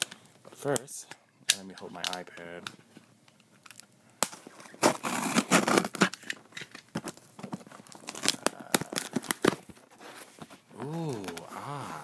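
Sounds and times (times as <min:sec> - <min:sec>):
packing tape tearing: 0:03.7 - 0:10.3
cardboard crackling: 0:04.2 - 0:12.0.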